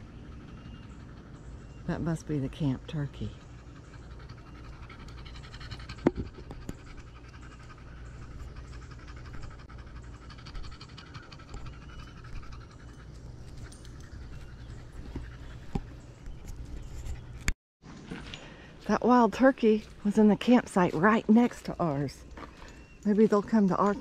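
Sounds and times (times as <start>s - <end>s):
dog panting: 0.0s - 17.4s.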